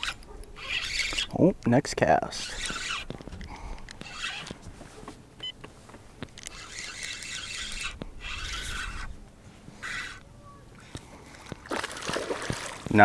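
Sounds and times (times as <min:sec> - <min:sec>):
spinning reel gear whirr: 0:00.0 - 0:01.3, 0:02.4 - 0:04.6, 0:06.4 - 0:09.1, 0:09.8 - 0:10.2.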